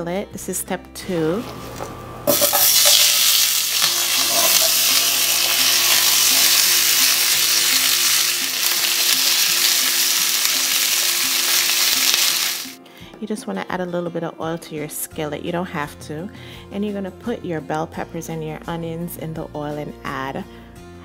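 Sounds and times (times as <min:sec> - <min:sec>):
vegetables sizzling in hot oil: 0:02.3 - 0:12.8.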